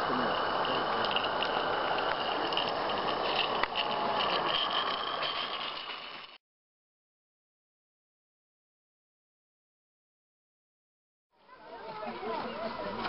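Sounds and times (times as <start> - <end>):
steam locomotive hissing: 0.0 - 5.7.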